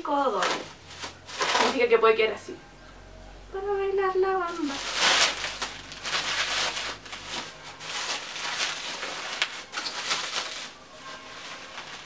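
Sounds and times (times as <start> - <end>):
plastic wrapping crinkling: 0.3 - 1.9, 4.5 - 12.0.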